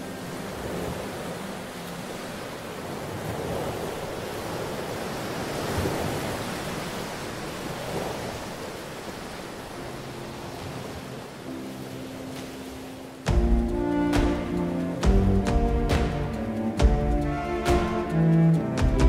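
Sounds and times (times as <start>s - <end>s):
soft music: 0.0s - 5.1s, 9.1s - 19.0s
ocean waves washing in: 0.0s - 19.0s.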